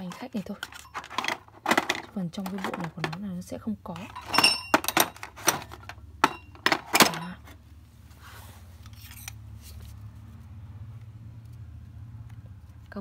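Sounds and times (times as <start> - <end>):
metal sockets clinking: 0.0 - 3.2, 4.0 - 7.6.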